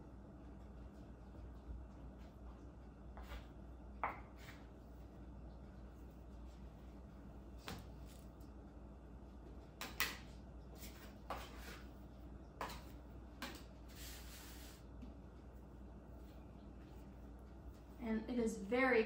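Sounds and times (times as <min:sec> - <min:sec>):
dough scraping on counter: 0:10.8 - 0:11.9, 0:12.6 - 0:14.8.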